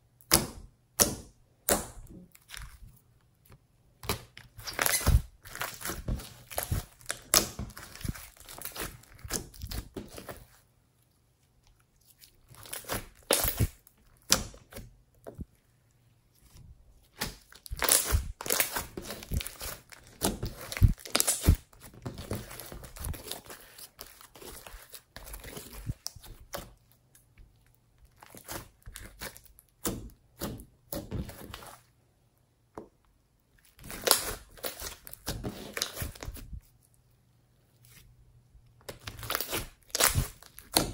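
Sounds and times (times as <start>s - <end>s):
slime crackling and popping: 4.0s - 10.4s, 12.1s - 14.8s, 17.1s - 26.8s, 33.7s - 36.4s, 38.9s - 40.9s.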